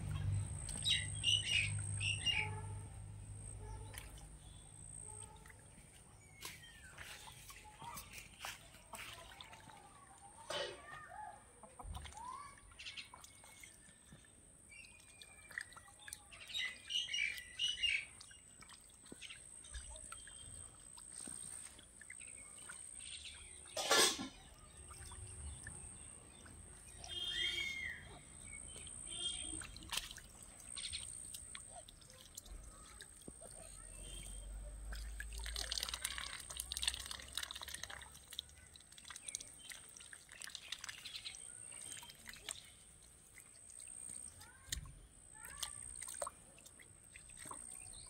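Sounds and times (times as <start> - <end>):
birds chirping: 0.0 - 2.8, 11.6 - 36.1
ducks dabbling in water: 0.0 - 48.0.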